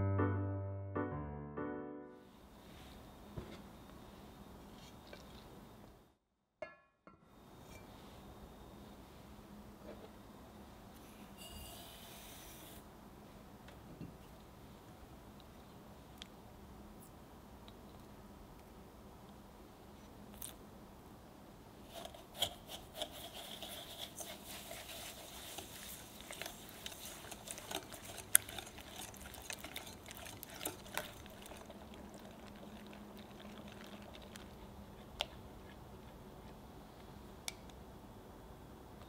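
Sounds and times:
whisk beating in glass bowl: 0:23.0 - 0:34.7.

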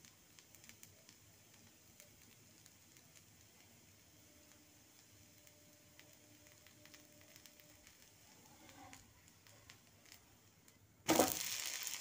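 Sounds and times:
faint crackles on hot griddle: 0:00.0 - 0:12.0.

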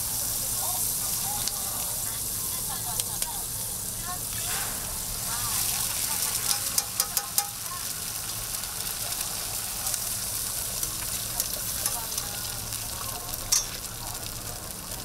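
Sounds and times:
oil sizzling on a griddle: 0:00.0 - 0:15.0
metal tongs clicking on griddle: 0:01.4 - 0:01.6, 0:02.9 - 0:03.4, 0:06.3 - 0:07.7, 0:10.9 - 0:12.5, 0:13.3 - 0:14.2.

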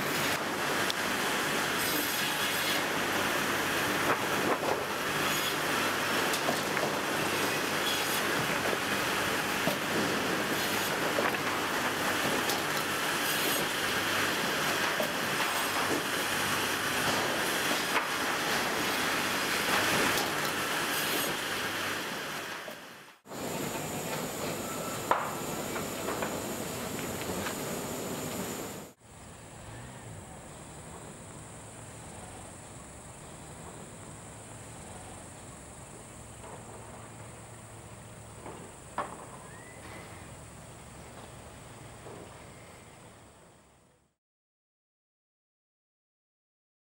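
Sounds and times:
conveyor machinery clatter and hum: 0:00.0 - 0:43.8
insects chirring: 0:29.0 - 0:43.2.

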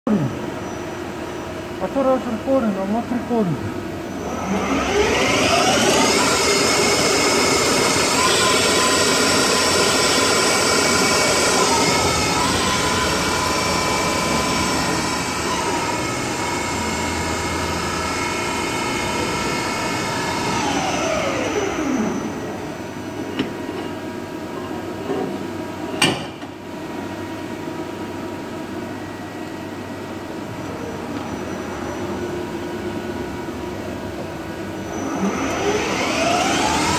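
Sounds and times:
lathe spindle whining: 0:04.1 - 0:22.7, 0:34.7 - 0:36.9.

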